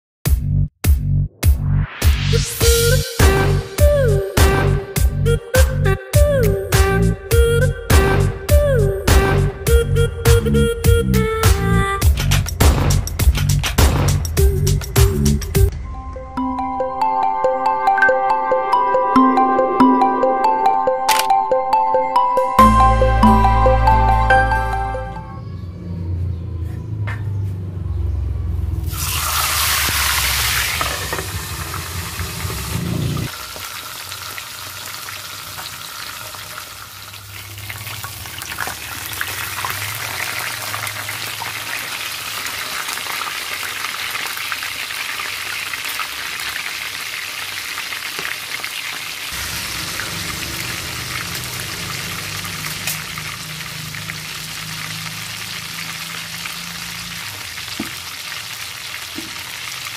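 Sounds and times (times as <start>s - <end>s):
fish sizzling in hot oil: 28.8s - 59.9s.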